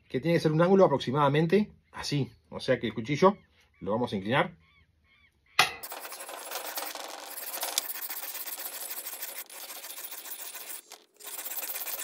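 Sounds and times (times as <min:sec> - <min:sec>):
knife rasping on whetstone: 0:05.8 - 0:12.0.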